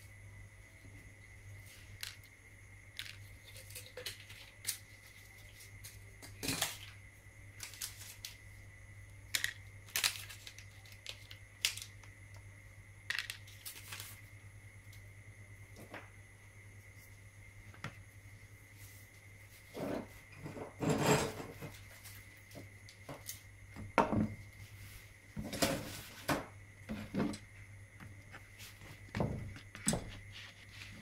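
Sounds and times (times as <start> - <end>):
faint low hum: 0.0 - 31.0
small parts clicking on plastic: 9.3 - 12.4.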